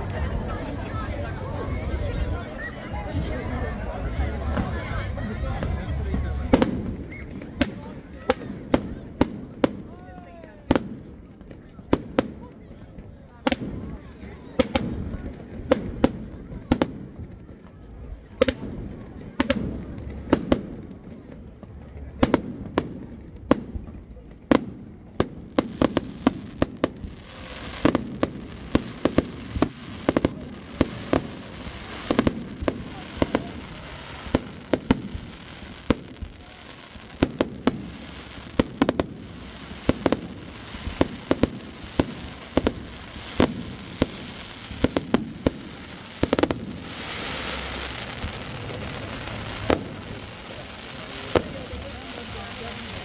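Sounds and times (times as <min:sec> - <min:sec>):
firework crackling: 0:00.0 - 0:53.0.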